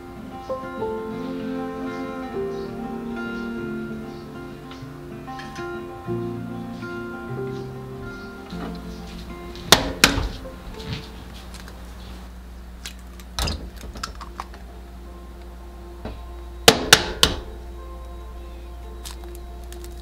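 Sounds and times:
soft background music: 0.0 - 12.1, 14.0 - 20.0.

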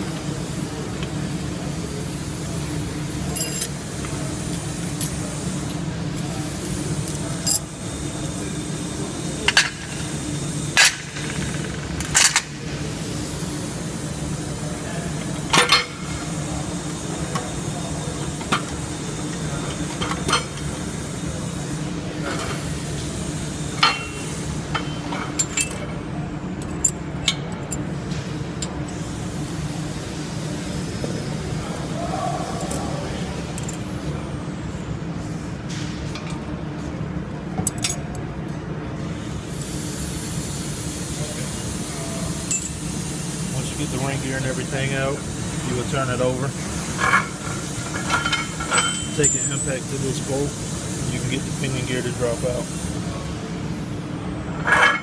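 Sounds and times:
metal gears clinking and knocking: 3.3 - 3.8.

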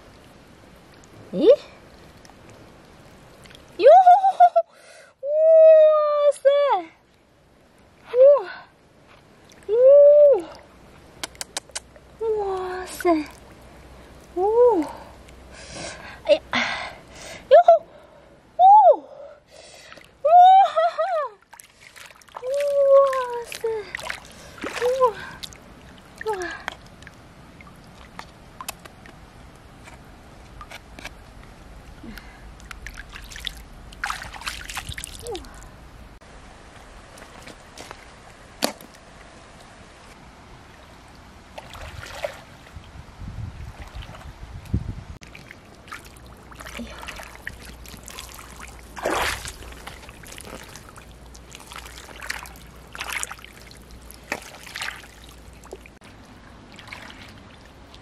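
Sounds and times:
water trickling and dripping: 0.0 - 4.0, 19.7 - 29.7, 30.3 - 38.0, 40.6 - 58.0
low steady rumble: 6.8 - 58.0
hand splashing in water: 21.5 - 25.6, 45.2 - 55.9.

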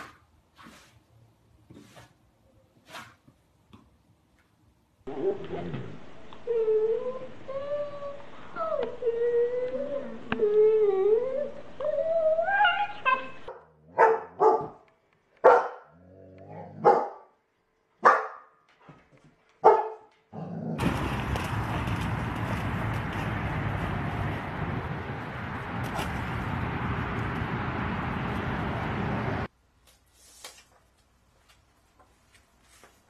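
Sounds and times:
dog barking: 13.5 - 14.8, 15.4 - 15.9, 16.8 - 17.3, 18.0 - 18.6, 19.6 - 20.1
dog splashing through water: 20.8 - 27.4.

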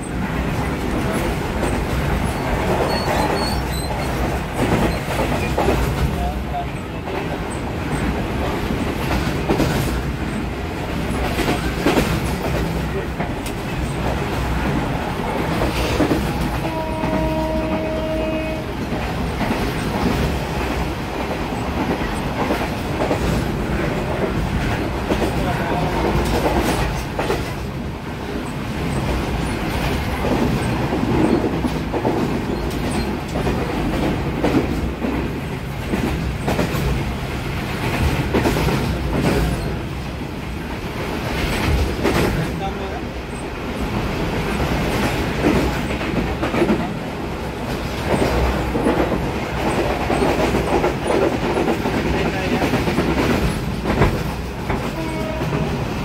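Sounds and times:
train rumble: 0.0 - 56.0
train horn: 16.6 - 18.8, 25.5 - 26.4, 54.9 - 55.7.

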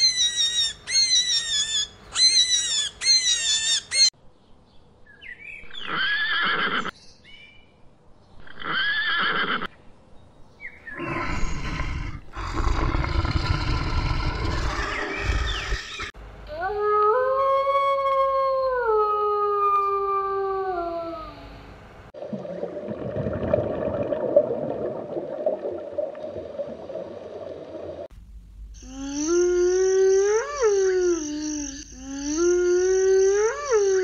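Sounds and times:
bear growling: 10.9 - 16.1.

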